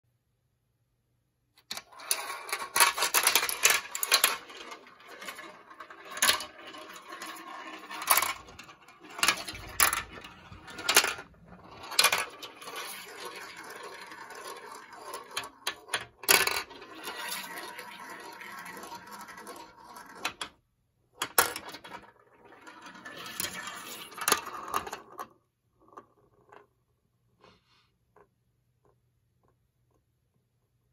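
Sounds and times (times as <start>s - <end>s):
marble clacking on plastic: 1.6s - 20.6s, 21.2s - 26.8s
marble rolling rattle: 1.7s - 20.5s, 21.2s - 26.8s.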